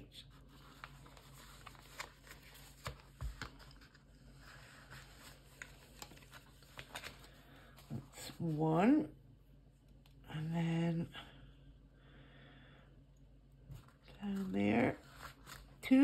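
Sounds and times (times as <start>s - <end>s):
paper rustling: 0.3s - 8.5s, 13.7s - 16.0s.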